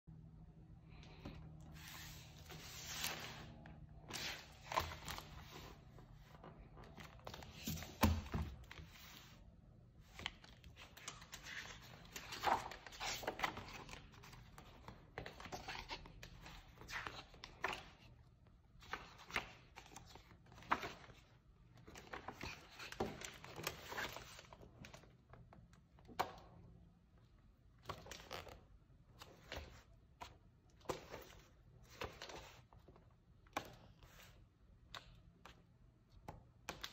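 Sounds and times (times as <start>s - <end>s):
book pages turning: 1.0s - 9.4s, 10.0s - 18.0s.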